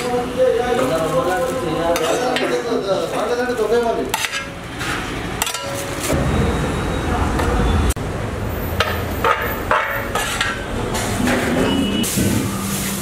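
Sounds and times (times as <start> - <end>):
rice rustling: 0.0 - 6.1
clinks and scrapes against pot: 4.0 - 6.2, 8.8 - 11.8.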